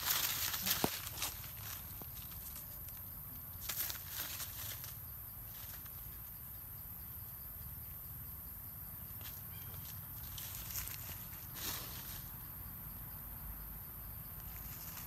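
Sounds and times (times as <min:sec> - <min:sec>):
footsteps crunching dry leaves: 0:00.0 - 0:02.9, 0:03.6 - 0:05.9, 0:09.2 - 0:12.3
insect buzz: 0:00.0 - 0:15.0.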